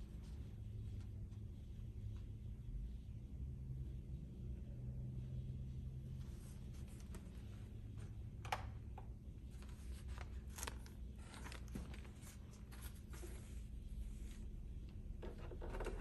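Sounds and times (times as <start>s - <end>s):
faint low hum: 0.0s - 16.0s
newspaper rustling: 9.5s - 14.4s.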